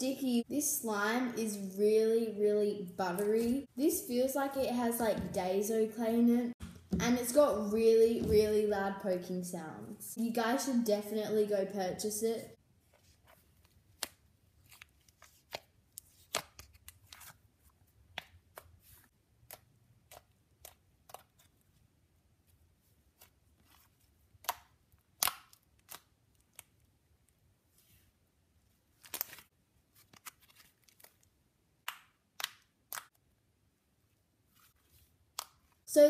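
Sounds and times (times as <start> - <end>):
slime clicking and popping: 24.4 - 26.7.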